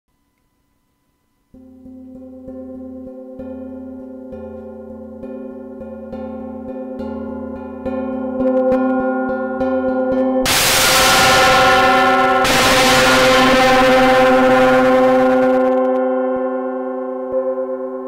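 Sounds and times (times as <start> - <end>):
loud gong crash: 10.4 - 16.0.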